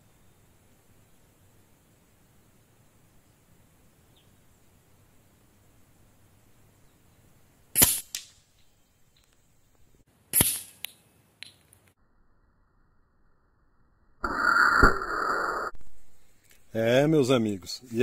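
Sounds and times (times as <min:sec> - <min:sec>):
air rifle shots: 0:07.8 - 0:08.2, 0:10.3 - 0:10.8.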